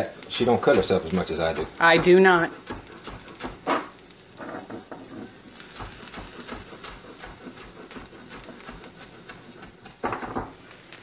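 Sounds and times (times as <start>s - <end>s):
knife chopping on wooden board: 1.5s - 4.0s, 5.6s - 10.6s.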